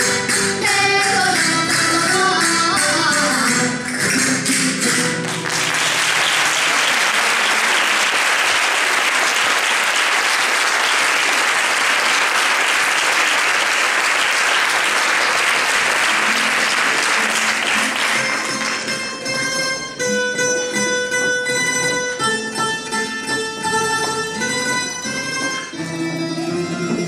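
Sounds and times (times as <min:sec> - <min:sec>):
plucked string band playing: 0:00.0 - 0:07.4, 0:16.0 - 0:27.0
audience applauding: 0:05.2 - 0:19.1.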